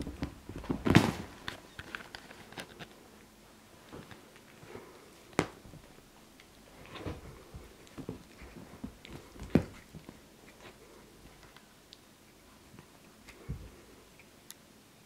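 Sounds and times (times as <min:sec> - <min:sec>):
cat thumping and rustling on sofa: 0:00.0 - 0:01.5, 0:06.8 - 0:10.7, 0:13.4 - 0:13.9.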